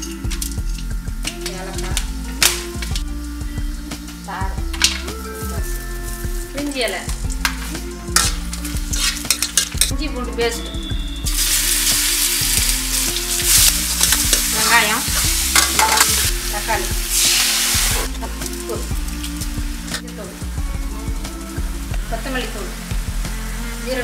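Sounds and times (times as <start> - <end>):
loud sizzle of paste in oil: 0.0 - 9.9, 10.8 - 24.0
spices frying in hot oil: 0.0 - 24.0
ladle clinking and scraping pan: 7.5 - 9.9, 13.4 - 16.3.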